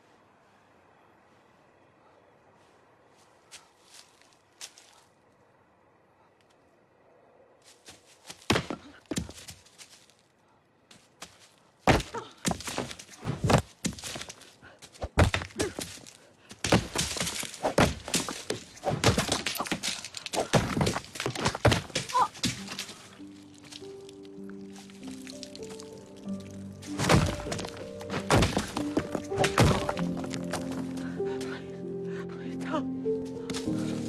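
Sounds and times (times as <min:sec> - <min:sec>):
stones hitting a person: 0:11.8 - 0:23.9, 0:24.7 - 0:30.8.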